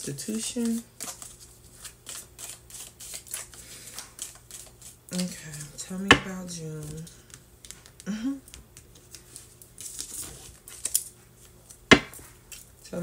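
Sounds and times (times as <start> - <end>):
cards shuffling: 0.3 - 5.8.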